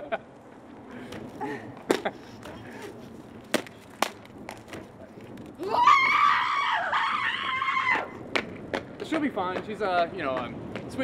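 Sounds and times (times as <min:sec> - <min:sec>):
woman screaming: 0:05.6 - 0:08.1.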